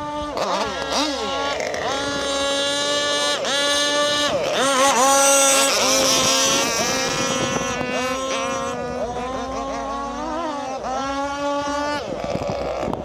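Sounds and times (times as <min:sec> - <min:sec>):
model boat engine whining: 0:00.0 - 0:13.0.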